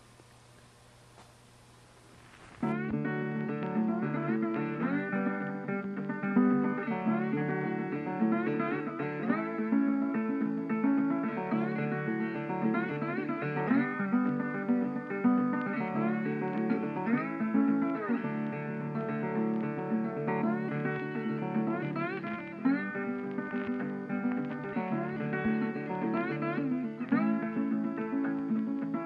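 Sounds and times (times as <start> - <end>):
acoustic guitar instrumental: 2.0 - 29.0.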